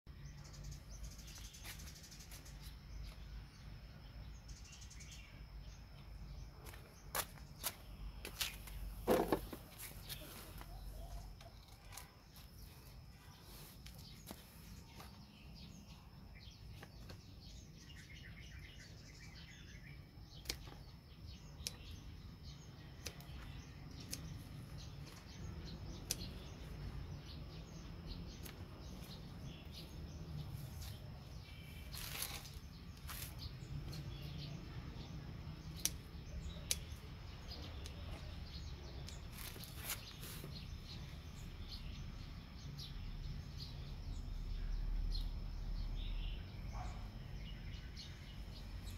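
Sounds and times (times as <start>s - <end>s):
scissors snipping: 20.4s - 22.0s, 23.0s - 26.9s, 35.7s - 37.1s.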